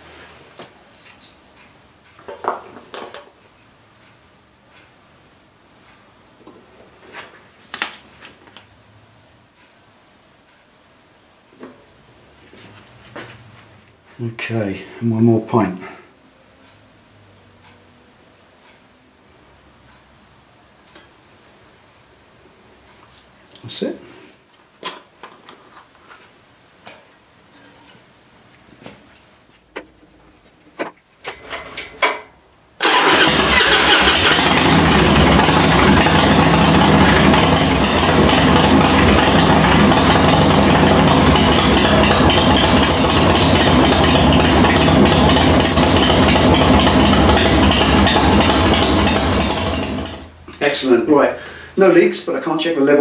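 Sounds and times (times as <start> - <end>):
motorcycle engine idling: 32.9 - 50.2.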